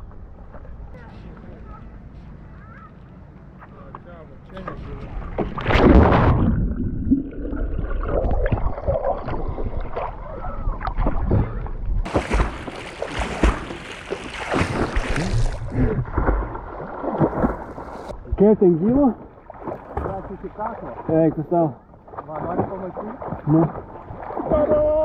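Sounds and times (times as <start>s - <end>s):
low rumble: 4.4s - 12.6s
water splashing: 4.6s - 18.2s, 18.8s - 25.0s.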